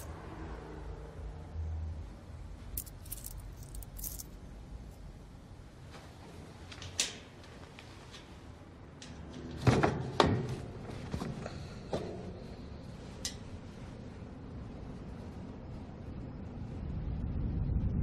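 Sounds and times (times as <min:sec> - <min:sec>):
coin clicking on vent grille: 0:02.8 - 0:04.3.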